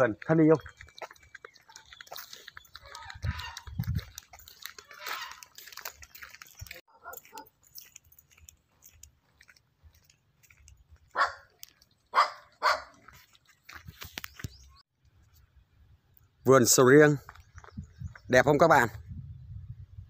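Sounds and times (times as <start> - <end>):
dog barking: 6.9 - 7.5, 11.1 - 11.5, 12.1 - 13.0.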